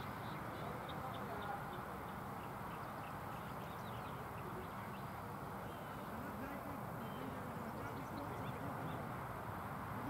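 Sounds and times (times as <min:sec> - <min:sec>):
bird chirping: 0:00.0 - 0:06.0.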